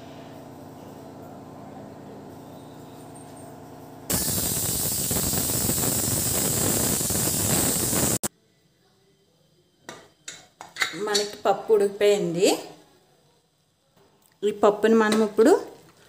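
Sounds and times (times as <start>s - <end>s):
pressure cooker whistle hissing: 4.1s - 8.3s.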